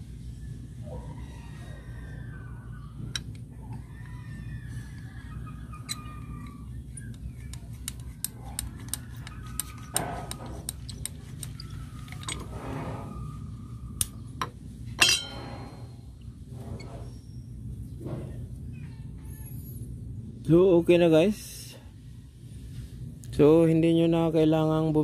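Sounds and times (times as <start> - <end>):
loud ringing metal clank: 15.0 - 16.0.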